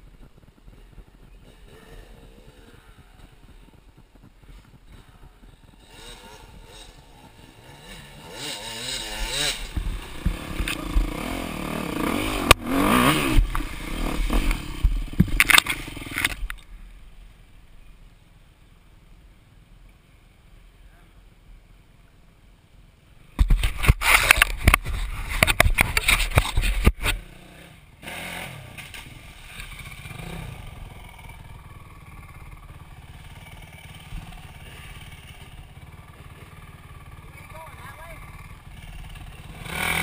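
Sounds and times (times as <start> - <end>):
dirt bike engine revving: 0.2 - 16.5, 27.0 - 40.0
sharp knocks and scrapes: 23.4 - 27.2.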